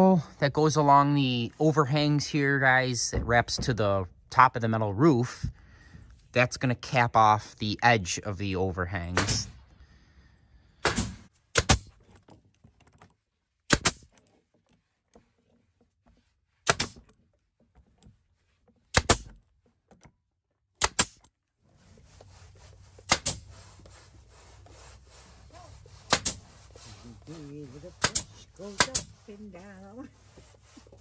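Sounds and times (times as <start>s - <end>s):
nail gun firing: 9.1s - 9.5s, 10.8s - 11.9s, 13.7s - 14.1s, 16.6s - 17.0s, 18.9s - 19.4s, 20.8s - 21.3s, 23.1s - 23.6s, 26.1s - 26.4s, 28.0s - 29.2s.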